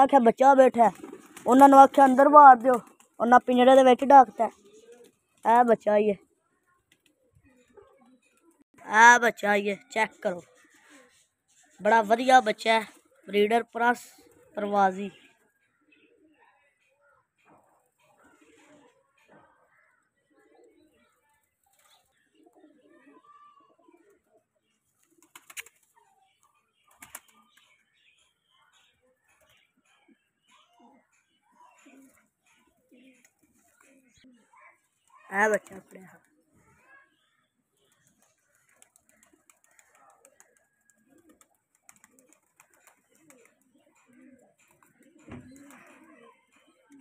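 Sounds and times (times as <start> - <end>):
pigeons cooing: 4.2 - 5.2, 10.4 - 11.3, 18.0 - 21.1, 21.9 - 24.2, 29.3 - 34.5, 38.0 - 47.0.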